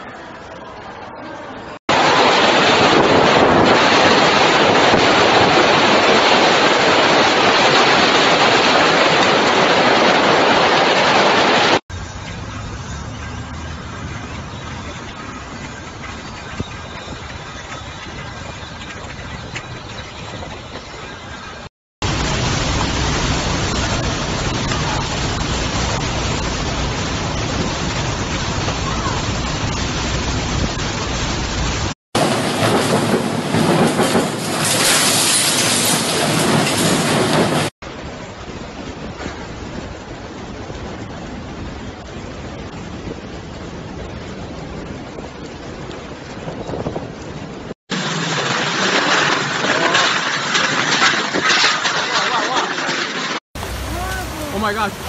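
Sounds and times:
heavy driving rain: 0:00.1 - 0:55.0
storm wind rushing: 0:01.9 - 0:11.8, 0:22.0 - 0:52.2.

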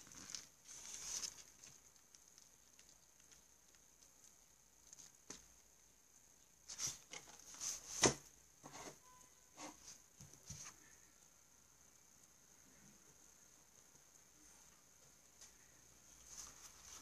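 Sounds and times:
notebook pages rustling: 0:00.0 - 0:02.2, 0:06.7 - 0:09.0, 0:16.2 - 0:17.0.

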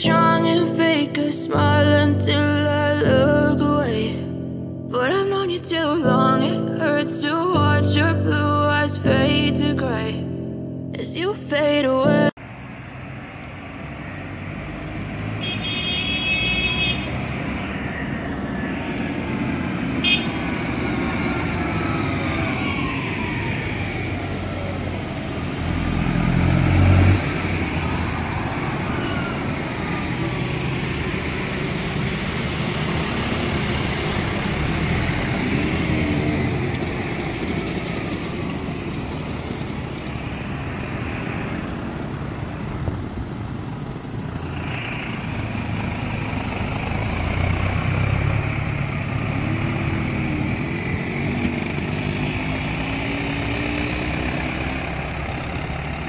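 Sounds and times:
tractors driving past: 0:12.4 - 0:56.0.

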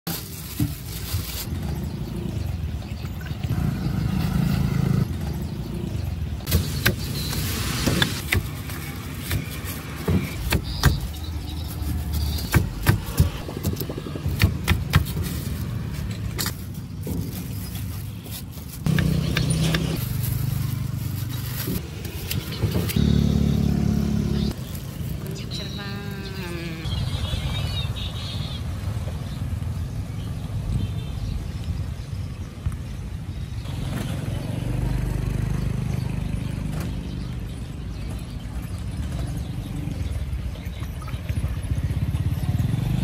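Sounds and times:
vehicle engines passing: 0:00.1 - 0:30.8, 0:33.6 - 0:43.0.

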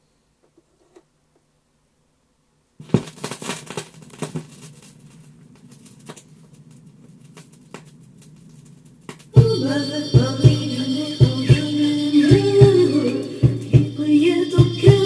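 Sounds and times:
vinyl record crackle and pops: 0:02.6 - 0:15.0
low hum: 0:09.4 - 0:15.0.

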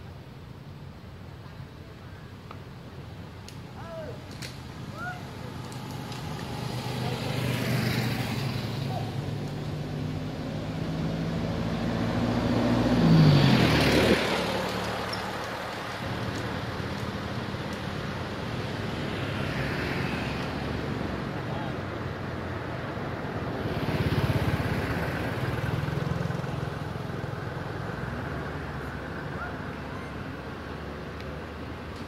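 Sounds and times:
faint passing traffic: 0:00.0 - 0:32.0
vehicle driving past: 0:05.6 - 0:15.9.

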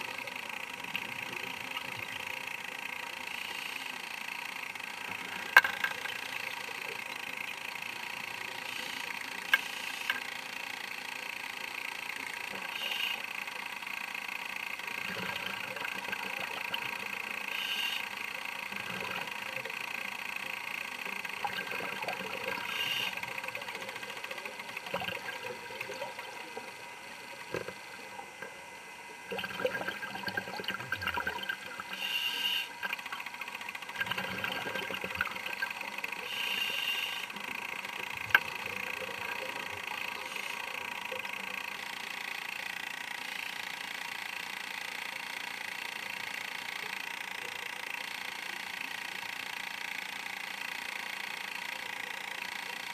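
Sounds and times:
steady hum: 0:00.0 - 0:44.1
exhaled air bubbling: 0:14.9 - 0:17.2, 0:21.1 - 0:32.1, 0:32.7 - 0:36.6, 0:37.4 - 0:41.3
regulator inhalation hiss: 0:17.4 - 0:18.1, 0:32.0 - 0:32.7, 0:36.2 - 0:37.4.

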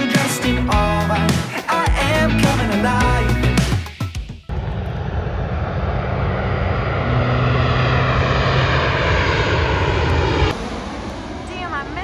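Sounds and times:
loud engine drone: 0:04.5 - 0:12.0.

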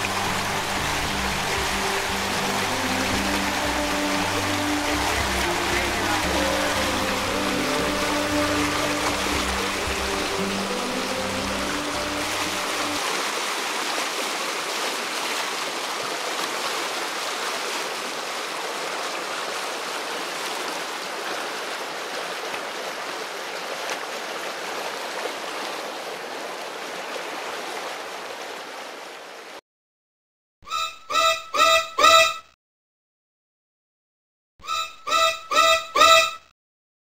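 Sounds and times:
river rapids rushing over rocks: 0:00.0 - 0:28.1.

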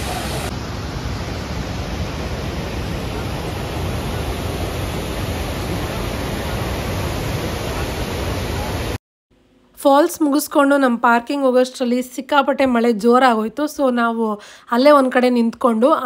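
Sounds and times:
waterfall rushing over rocks: 0:00.0 - 0:09.0.

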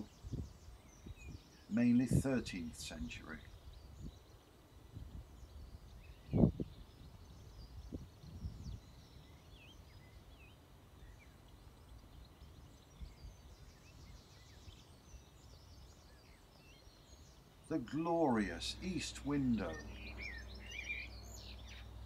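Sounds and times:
wind rumble on microphone: 0:00.0 - 0:10.4, 0:11.9 - 0:16.0
songbirds chirping: 0:00.0 - 0:22.0
bird trill: 0:05.5 - 0:22.0.

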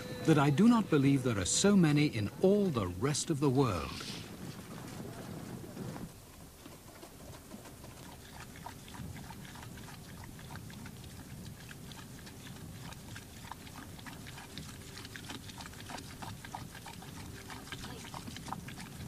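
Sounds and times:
low rumbling animal noise: 0:07.4 - 0:19.0.

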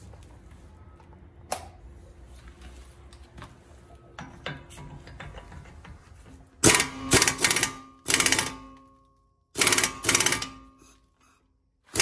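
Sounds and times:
pneumatic impact wrench hammering: 0:06.6 - 0:08.8, 0:09.6 - 0:10.9.

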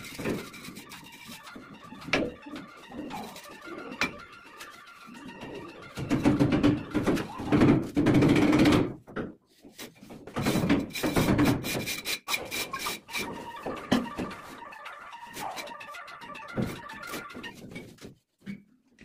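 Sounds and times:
background music: 0:00.0 - 0:08.7, 0:12.9 - 0:17.7.

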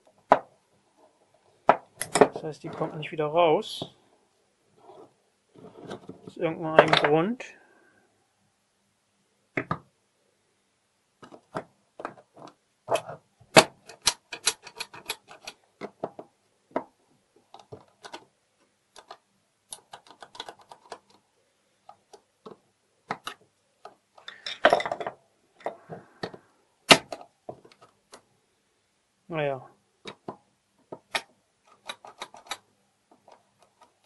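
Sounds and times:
metallic clicks of lock parts: 0:12.9 - 0:15.6, 0:31.0 - 0:34.0.

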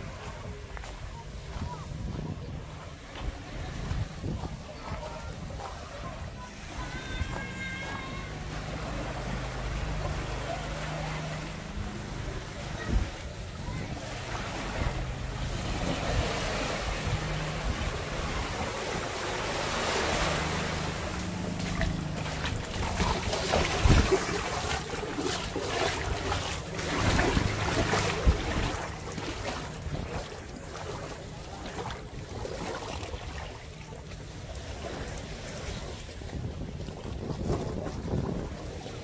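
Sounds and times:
wind on the microphone: 0:00.0 - 0:09.4, 0:11.7 - 0:19.3, 0:21.7 - 0:39.0
small waves washing onto beach: 0:00.0 - 0:39.0.

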